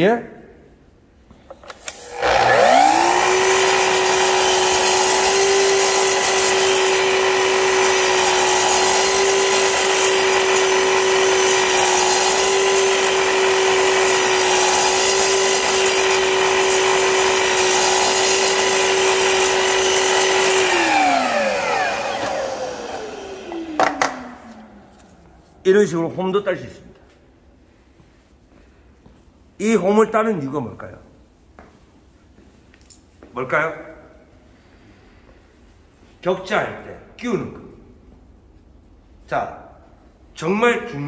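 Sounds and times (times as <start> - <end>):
mitre saw motor whine: 1.9 - 25.0
saw blade cutting wood: 1.9 - 25.2.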